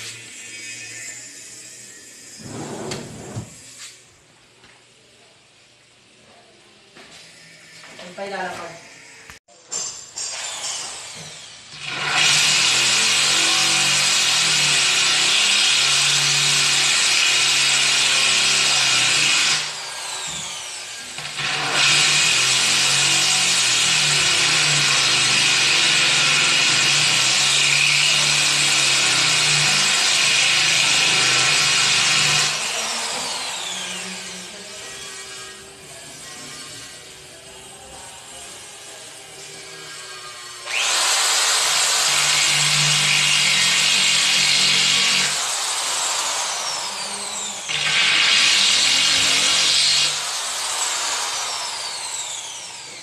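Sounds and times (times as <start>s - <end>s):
electric drill running: 10.3s - 37.6s, 38.4s - 53.0s.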